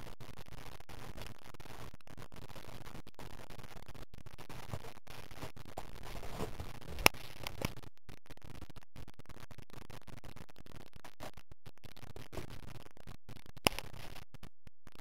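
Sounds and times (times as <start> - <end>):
scratching on fabric cushion: 4.7 - 7.7.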